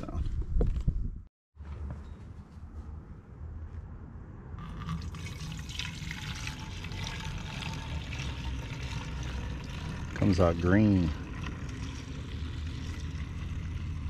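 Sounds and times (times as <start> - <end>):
liquid pouring into plastic bottle: 4.6 - 14.0.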